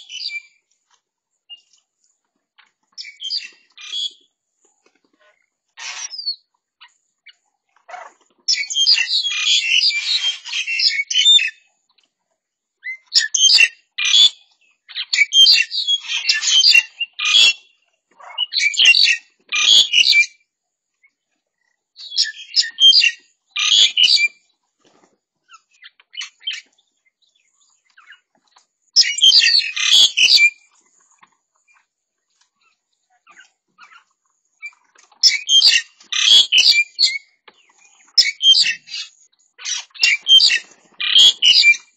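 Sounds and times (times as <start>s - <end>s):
birds chattering harshly: 7.9s - 11.5s, 18.2s - 20.3s, 22.0s - 24.3s, 29.0s - 31.8s, 32.6s - 41.9s.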